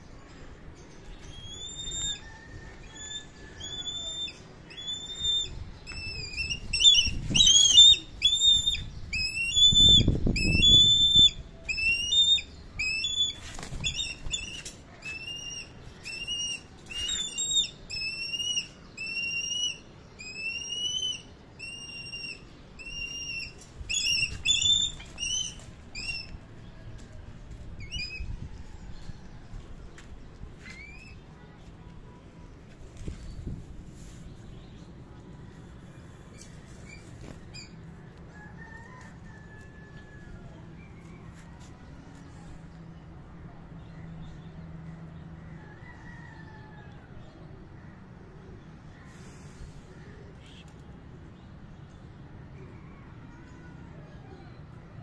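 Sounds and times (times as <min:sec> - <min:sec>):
bird whistled calls: 0:02.9 - 0:26.3.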